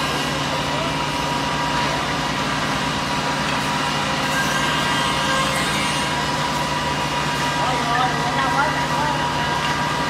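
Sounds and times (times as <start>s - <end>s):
steady high machine tone: 4.0s - 6.6s.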